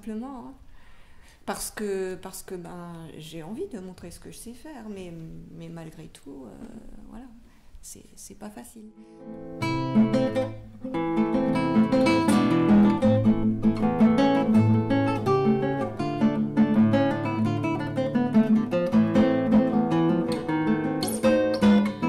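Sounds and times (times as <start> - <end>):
fingerstyle classical guitar: 9.1 - 22.0.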